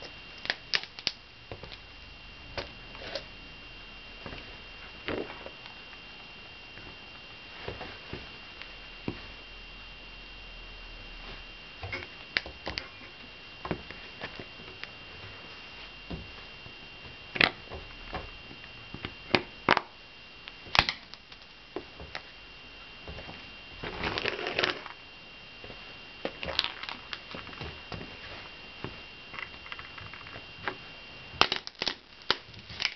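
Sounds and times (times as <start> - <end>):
footsteps crunching dried fruit: 23.0 - 25.0, 25.6 - 32.9.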